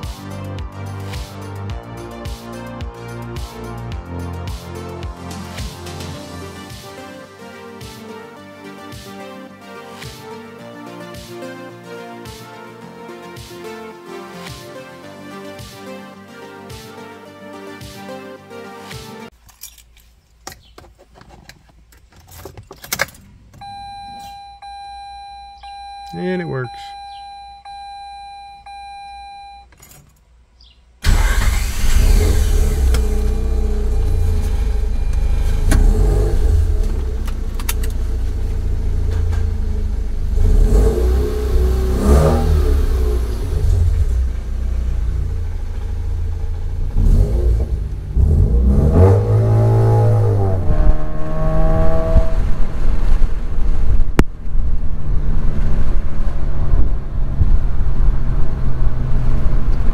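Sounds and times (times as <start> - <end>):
faint electronic beep tone: 23.6 - 29.7
road rumble: 29.7 - 59.9.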